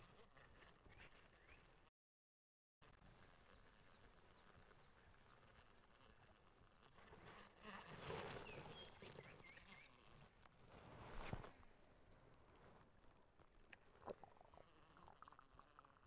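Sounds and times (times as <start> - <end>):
high insect buzz: 3.2 - 10.4
bird chirps: 8.4 - 10.0
sleeve and fishing rod rustling: 10.5 - 11.8.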